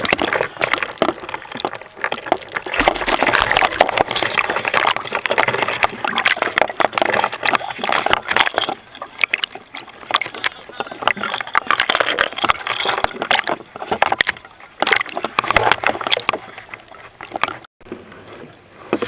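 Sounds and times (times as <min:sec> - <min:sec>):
sea water splashing: 0:00.0 - 0:17.7.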